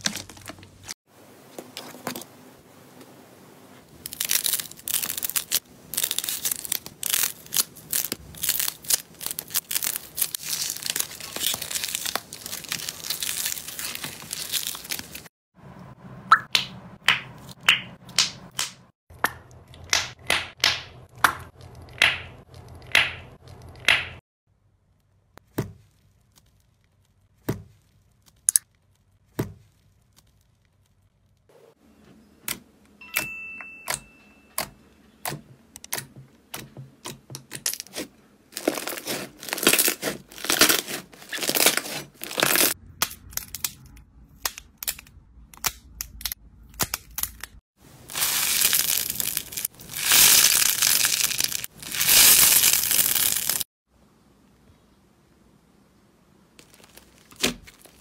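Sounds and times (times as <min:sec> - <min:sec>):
foam sponge crackling: 0:03.3 - 0:15.3, 0:37.9 - 0:42.8, 0:47.8 - 0:53.7, 0:56.6 - 0:58.0.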